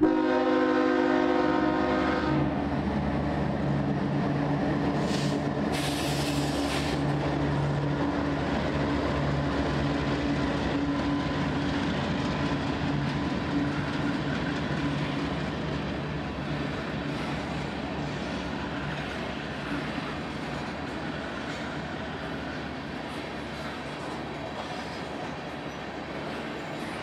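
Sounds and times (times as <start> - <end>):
diesel locomotive engines droning: 0.0 - 27.0
brief hiss: 5.0 - 7.0.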